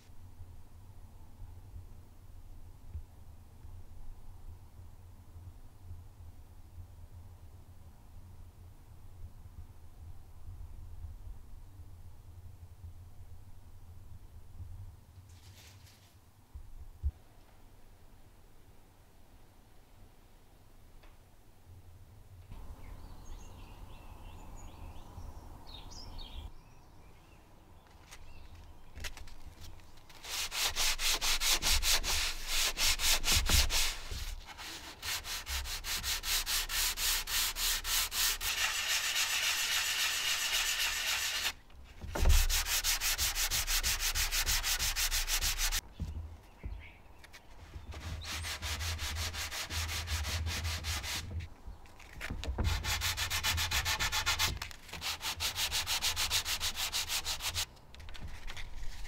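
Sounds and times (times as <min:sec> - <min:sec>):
sandpaper rubbing on wood: 0:30.1 - 0:45.8, 0:47.9 - 0:51.4, 0:52.6 - 0:57.7
thump: 0:42.0 - 0:42.6.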